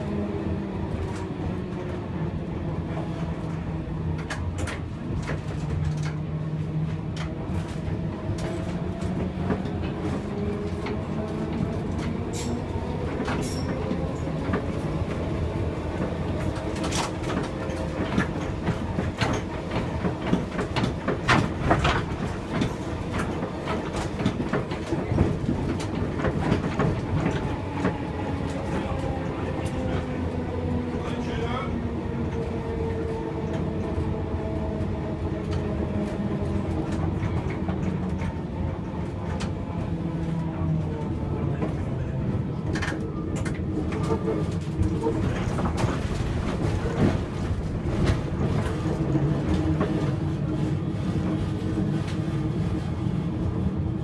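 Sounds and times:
tram running with whine: 0.0s - 54.0s.

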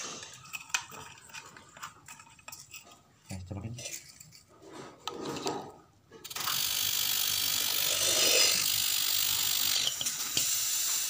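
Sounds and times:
handling of fittings: 0.0s - 5.7s
compressed gas hissing through hose: 7.7s - 11.0s.

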